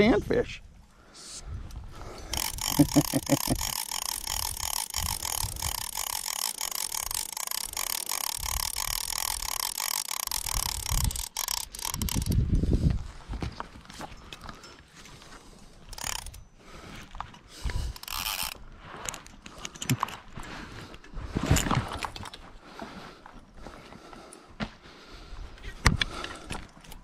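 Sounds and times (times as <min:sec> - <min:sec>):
fishing reel ratchet clicking: 0:02.1 - 0:12.4, 0:15.8 - 0:16.5, 0:17.6 - 0:20.0.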